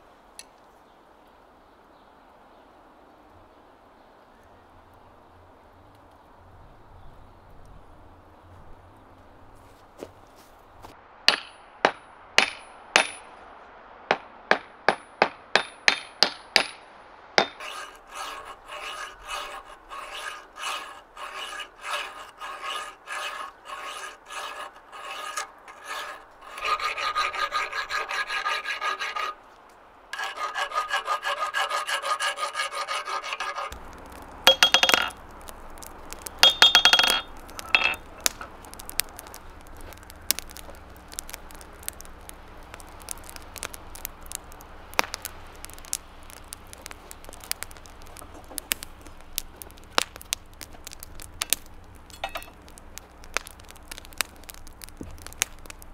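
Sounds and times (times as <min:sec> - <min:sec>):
metal file scraping steel: 0:17.6 - 0:29.4, 0:30.2 - 0:33.8, 0:34.5 - 0:35.1, 0:36.1 - 0:39.4.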